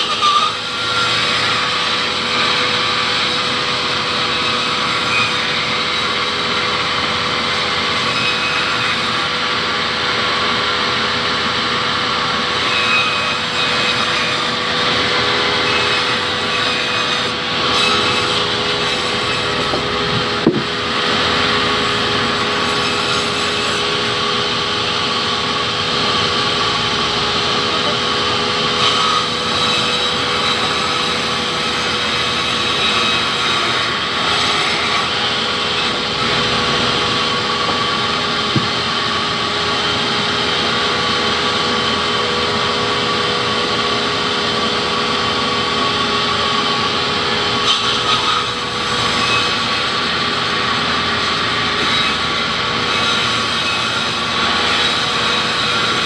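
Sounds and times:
band saw cutting log: 0:00.0 - 0:56.0
sharp knocks: 0:19.6 - 0:20.8, 0:38.5 - 0:38.9.

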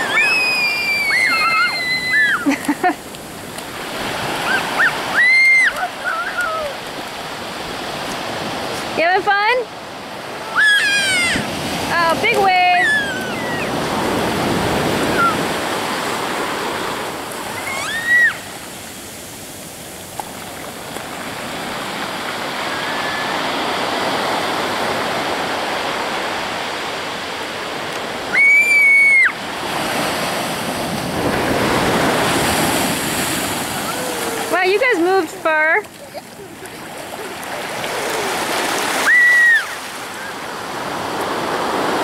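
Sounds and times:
child squealing: 0:00.0 - 0:02.5, 0:04.4 - 0:06.8, 0:10.4 - 0:11.5, 0:12.6 - 0:13.8, 0:15.0 - 0:15.5, 0:17.5 - 0:18.5, 0:22.7 - 0:23.4, 0:28.3 - 0:29.4, 0:33.8 - 0:34.6, 0:37.2 - 0:40.4
ocean surf on beach: 0:00.0 - 0:42.0.

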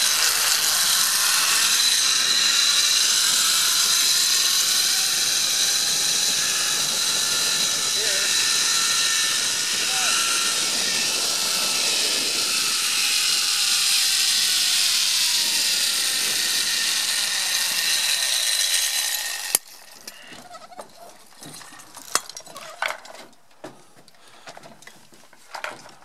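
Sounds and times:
zipline trolley running on cable: 0:00.0 - 0:20.2
wind rushing: 0:05.9 - 0:14.4.

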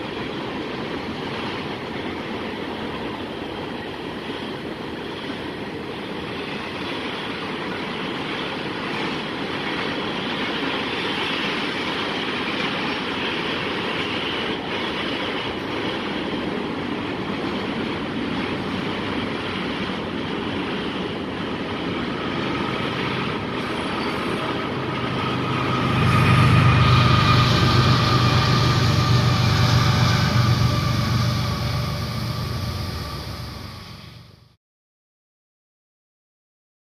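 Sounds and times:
train wheels rumbling on rails: 0:00.0 - 0:34.6
loud low drone: 0:23.4 - 0:34.6.

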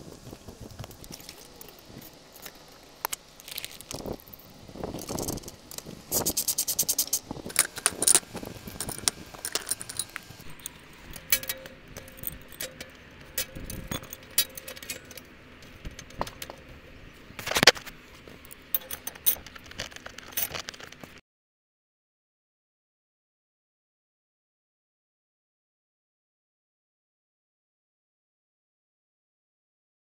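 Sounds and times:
wrench clicking on metal clamp: 0:08.8 - 0:15.2, 0:18.8 - 0:20.6.

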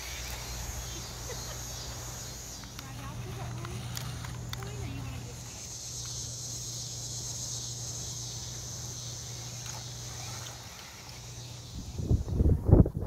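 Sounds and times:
insects chorus: 0:00.0 - 0:13.0
low steady hum: 0:00.0 - 0:13.0.

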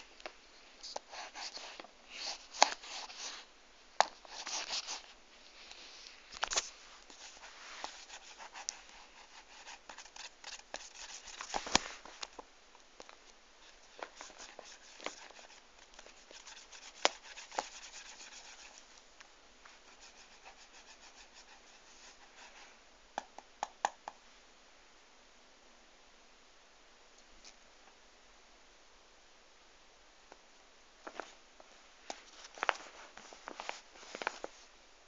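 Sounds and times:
paper rustling under paws: 0:32.1 - 0:34.7.

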